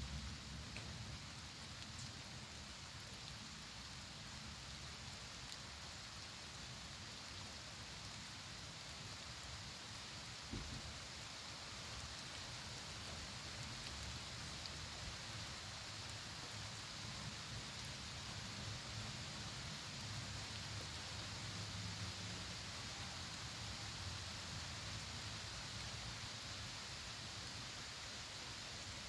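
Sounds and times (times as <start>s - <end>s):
faint outdoor hiss: 0.0s - 29.0s
soft low thump: 10.5s - 10.9s.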